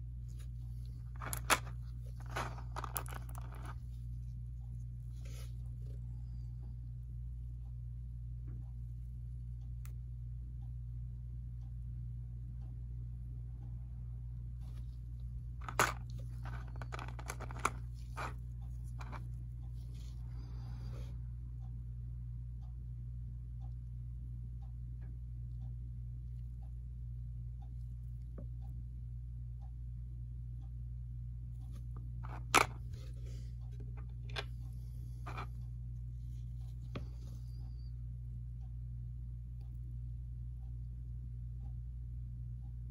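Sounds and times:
steady low hum: 0:00.0 - 0:42.9
plastic tray crinkling: 0:01.1 - 0:03.7, 0:15.6 - 0:18.3.

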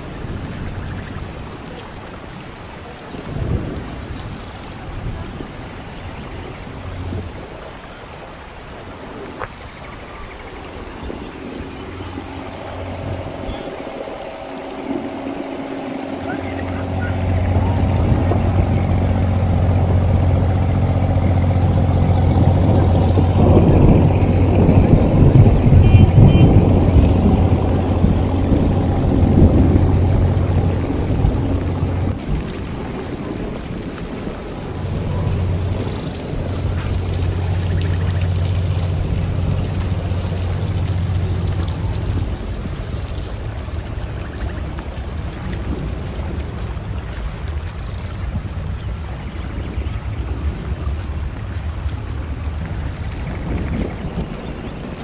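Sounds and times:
heavy rain on paving: 0:00.0 - 0:55.0
low steady hum: 0:10.8 - 0:54.2
boat diesel engine running: 0:11.1 - 0:54.9.

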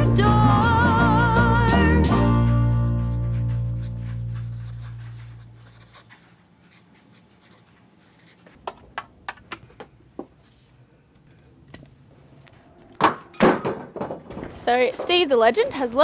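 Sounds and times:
music: 0:00.0 - 0:04.4
marker pen scratching on paper: 0:02.2 - 0:08.6.

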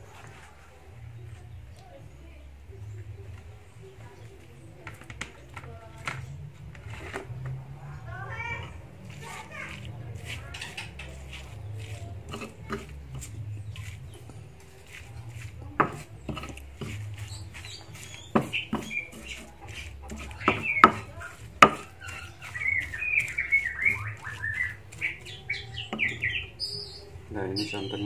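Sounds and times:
songbirds chirping: 0:00.0 - 0:28.0
stone pestle grinding in mortar: 0:09.8 - 0:14.2, 0:14.8 - 0:26.4.

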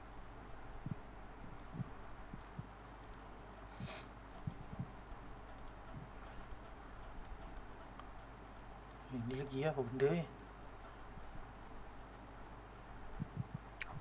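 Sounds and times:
faint steady hum: 0:00.0 - 0:14.0
soft low thumps: 0:00.8 - 0:02.7, 0:13.1 - 0:14.0
computer mouse clicks: 0:01.6 - 0:03.3, 0:04.4 - 0:04.9, 0:05.5 - 0:08.1, 0:08.8 - 0:10.5.

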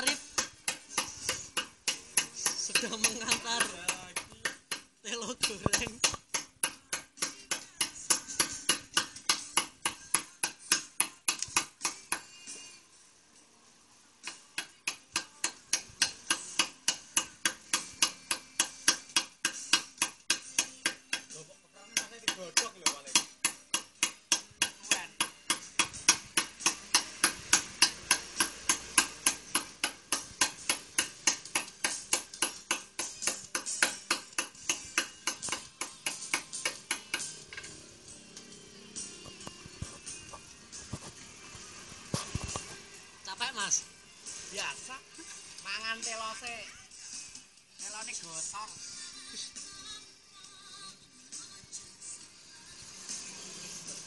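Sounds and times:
hammer tapping chisel into stone: 0:00.0 - 0:12.3, 0:14.2 - 0:21.3, 0:21.9 - 0:37.7.

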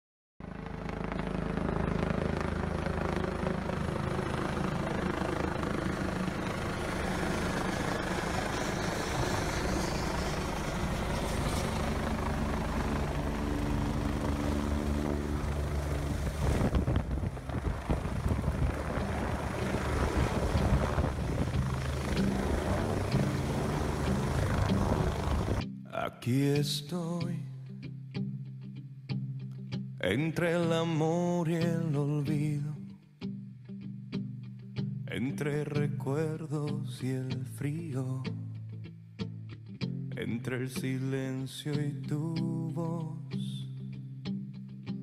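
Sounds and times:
helicopter rotor and turbine drone: 0:00.4 - 0:25.7
wind gusts: 0:01.3 - 0:25.6.

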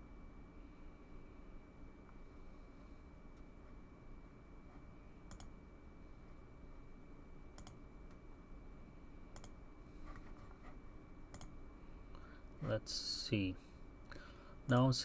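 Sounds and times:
room hum: 0:00.0 - 0:15.0
computer mouse clicks: 0:05.3 - 0:05.5, 0:07.6 - 0:08.2, 0:09.3 - 0:09.6, 0:11.3 - 0:11.5.

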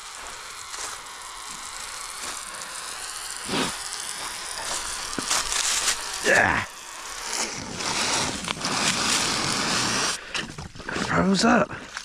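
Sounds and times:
steady hiss: 0:00.0 - 0:10.4.

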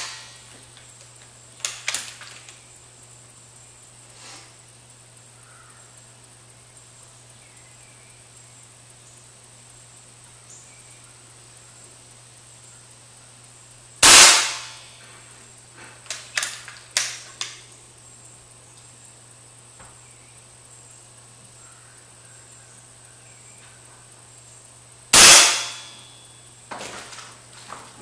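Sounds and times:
air rifle shot: 0:14.0 - 0:14.9, 0:25.2 - 0:26.0.

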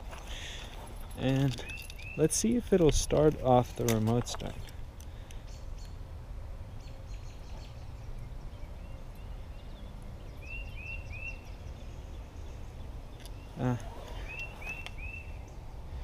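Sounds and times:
low outdoor rumble: 0:00.0 - 0:16.0
small bird chirping: 0:01.5 - 0:02.3, 0:06.7 - 0:15.6.

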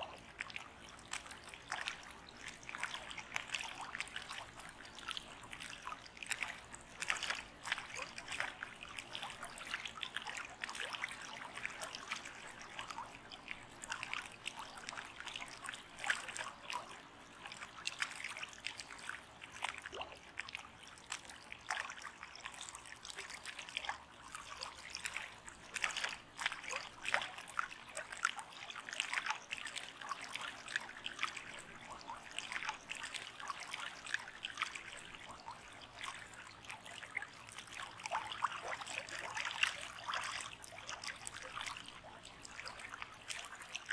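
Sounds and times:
water trickling and babbling: 0:00.0 - 0:43.9.

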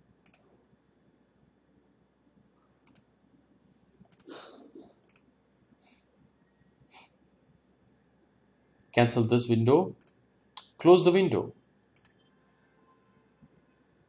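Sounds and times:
computer mouse clicks: 0:00.2 - 0:00.5, 0:02.8 - 0:03.1, 0:04.0 - 0:04.3, 0:05.0 - 0:05.3, 0:10.0 - 0:10.7, 0:12.0 - 0:12.3.

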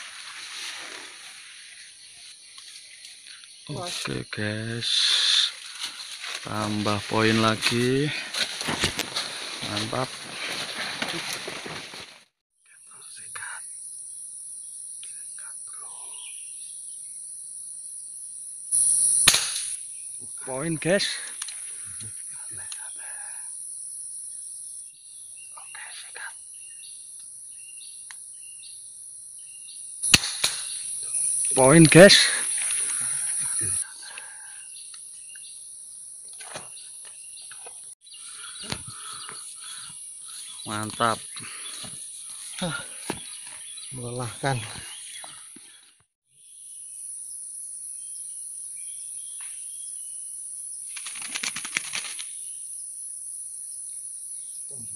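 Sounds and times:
high-pitched insect drone: 0:00.0 - 0:08.2, 0:12.7 - 0:24.8, 0:29.4 - 0:34.8
insects droning: 0:00.0 - 0:54.9
air rifle shot: 0:19.2 - 0:19.8, 0:30.1 - 0:30.8
faint bird chirps: 0:25.0 - 0:28.8.

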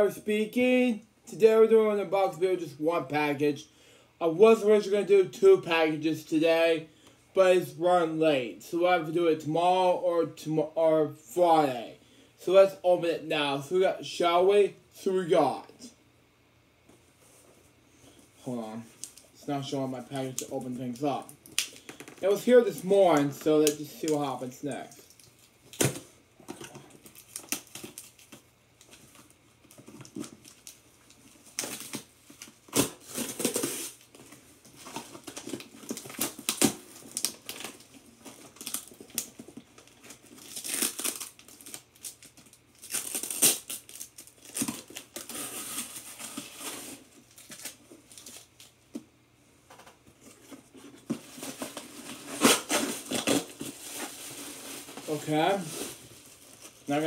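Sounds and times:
packaging crinkling and tearing: 0:25.1 - 0:48.8, 0:50.3 - 0:57.0.

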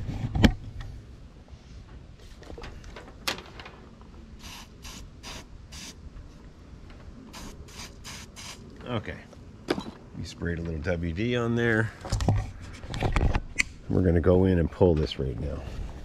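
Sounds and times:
aerosol spray hissing: 0:04.4 - 0:06.0, 0:07.3 - 0:08.6.

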